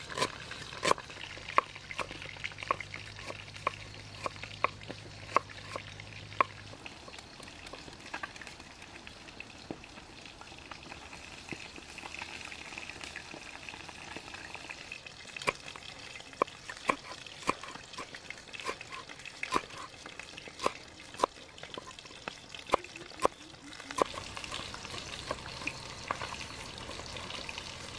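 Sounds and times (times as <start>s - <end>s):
cleaver chopping on wooden board: 18.7s - 19.9s.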